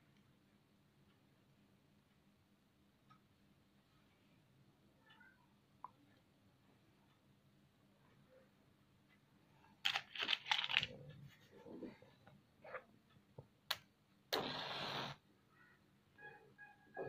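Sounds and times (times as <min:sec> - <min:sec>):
short hiss: 0:14.3 - 0:15.2.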